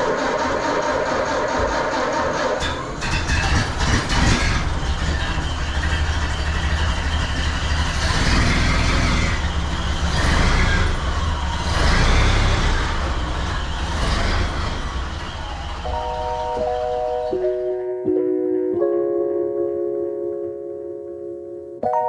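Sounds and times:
car engine revving: 0:02.1 - 0:17.6.

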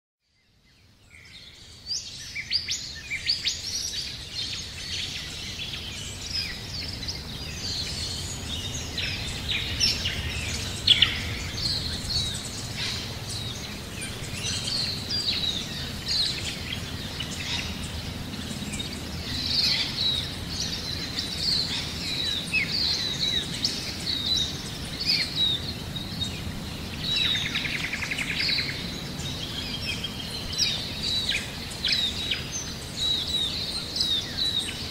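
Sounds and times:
small birds chirping: 0:00.3 - 0:34.9
low steady rumble: 0:05.2 - 0:22.2.

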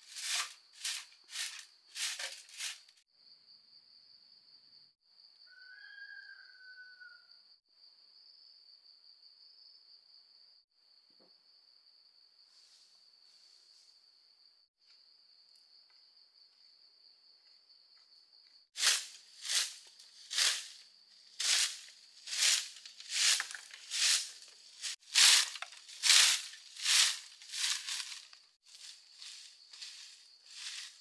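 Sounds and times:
high insect trill: 0:00.0 - 0:03.5, 0:11.5 - 0:31.0.

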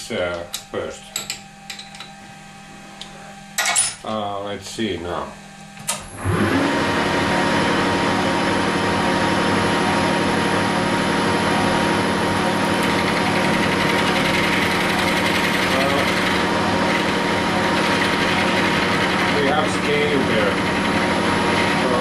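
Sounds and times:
metal lathe motor humming: 0:06.0 - 0:22.0.

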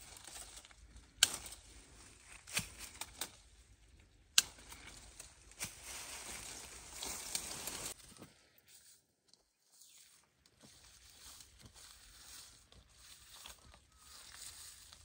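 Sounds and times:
leaves and branches rustling: 0:00.0 - 0:15.0
pruner clicks and snips: 0:00.4 - 0:01.6, 0:02.2 - 0:03.4, 0:04.0 - 0:05.3.

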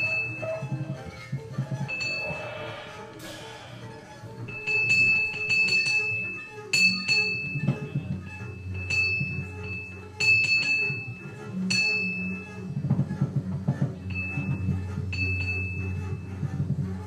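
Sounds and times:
bell-like metallic strikes: 0:01.9 - 0:08.0.

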